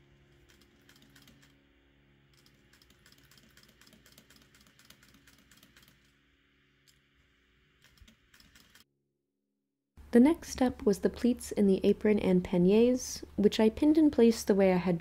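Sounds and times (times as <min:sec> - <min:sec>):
sewing machine stitching: 0:02.3 - 0:06.1.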